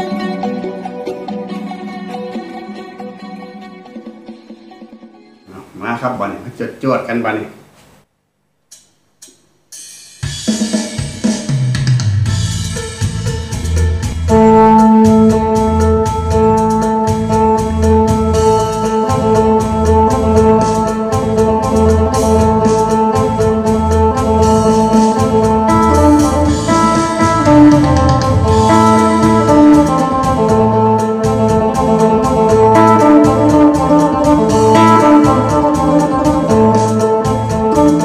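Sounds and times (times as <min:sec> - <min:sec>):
steady drum beat: 0:08.7 - 0:38.0.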